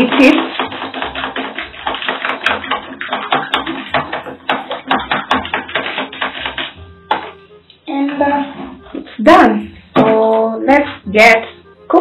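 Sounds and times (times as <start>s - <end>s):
utensil beating eggs in plastic bowl: 0.0s - 6.8s.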